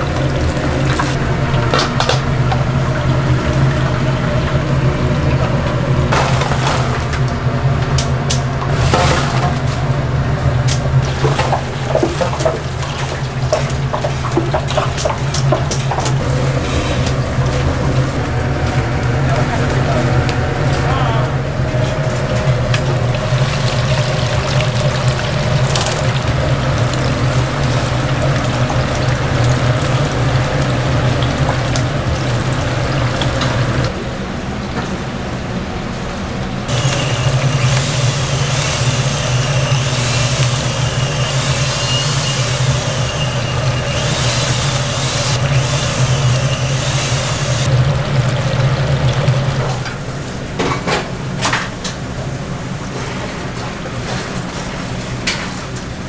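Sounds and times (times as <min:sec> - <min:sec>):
chicken sizzling in hot oil: 0:23.0 - 0:33.9, 0:36.7 - 0:49.6.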